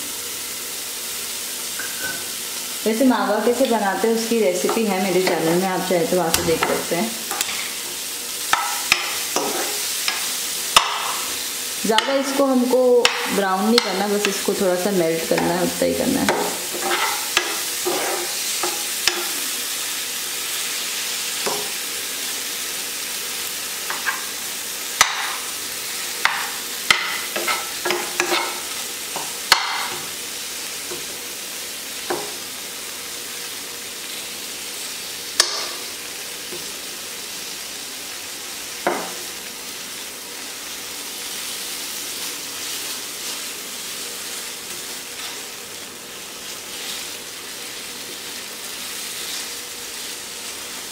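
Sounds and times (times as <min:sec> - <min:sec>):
food sizzling in a frying pan: 0:00.0 - 0:50.9
spoon scraping a pan: 0:04.6 - 0:07.8, 0:08.5 - 0:11.3, 0:15.2 - 0:19.5, 0:26.2 - 0:30.1.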